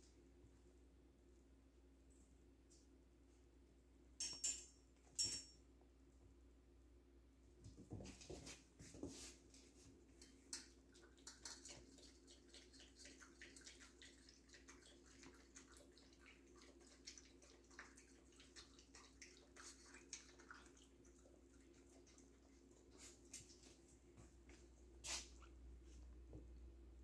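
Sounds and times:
puppy lapping water from bowl: 0:10.2 - 0:23.6.

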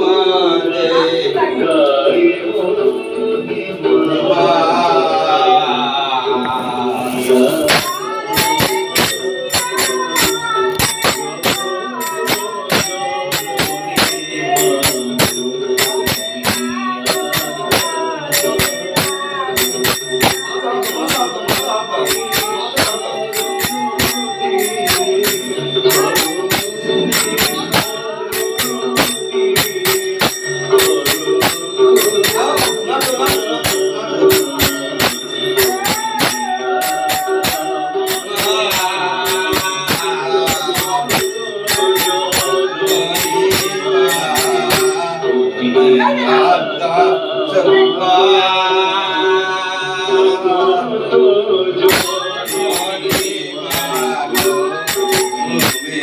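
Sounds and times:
person singing a melody: 0:00.0 - 0:56.0
metallic cymbal strikes: 0:07.1 - 0:45.4, 0:51.9 - 0:56.0.

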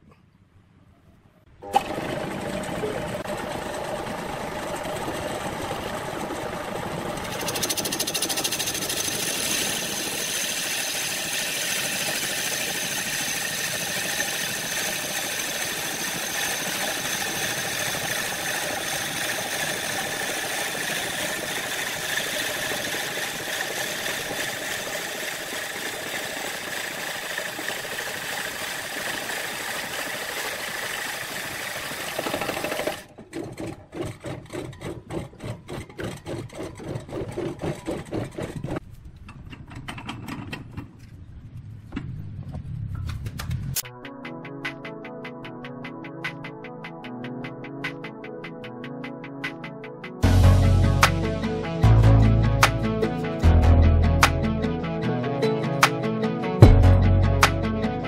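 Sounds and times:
wood lathe cutting: 0:01.6 - 0:38.8.

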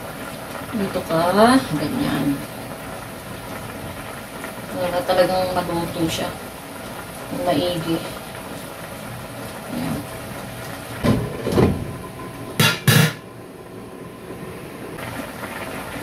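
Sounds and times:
broth simmering in a pan: 0:00.0 - 0:16.0
glass lid clanking on pan: 0:12.6 - 0:13.2.

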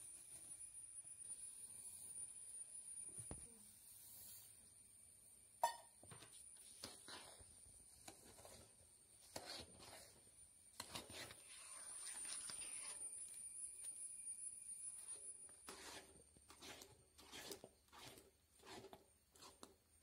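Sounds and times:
spatula stirring mashed banana: 0:06.2 - 0:14.0, 0:14.8 - 0:20.0.

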